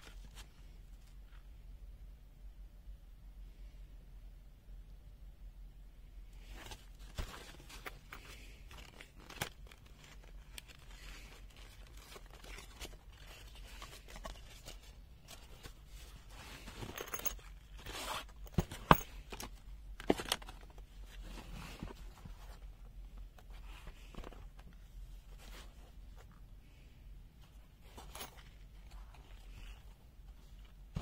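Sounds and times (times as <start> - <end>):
screwdriver set rustling: 7.5 - 22.7.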